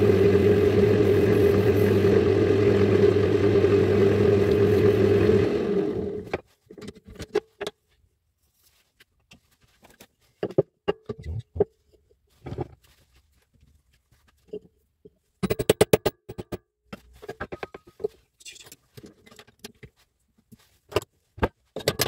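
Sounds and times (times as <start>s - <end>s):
wood lathe motor humming: 0.0s - 6.3s.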